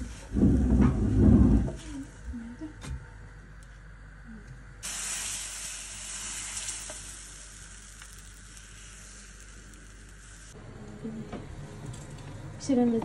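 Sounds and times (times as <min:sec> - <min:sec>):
pancake batter sizzling in a pan: 0:04.8 - 0:10.6.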